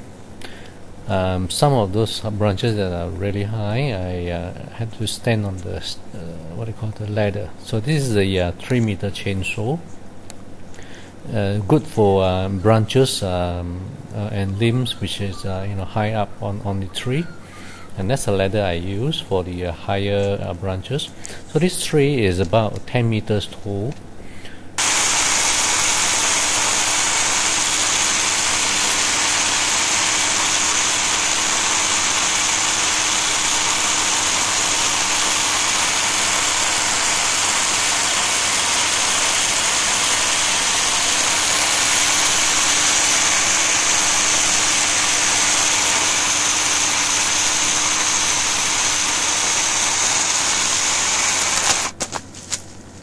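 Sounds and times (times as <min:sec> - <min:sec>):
electric chainsaw cutting tree trunk: 0:24.8 - 0:52.2.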